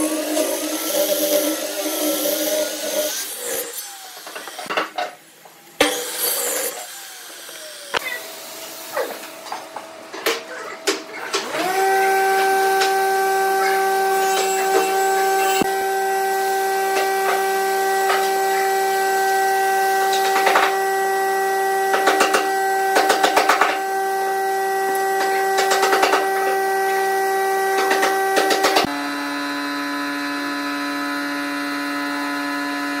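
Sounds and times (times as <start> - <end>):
machine motor whining: 11.2 - 23.2.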